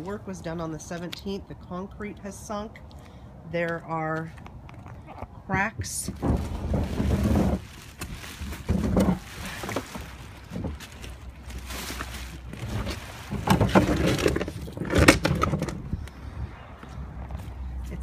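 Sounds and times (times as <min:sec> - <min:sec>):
wind rumble on microphone: 0:04.4 - 0:11.0, 0:12.4 - 0:18.0.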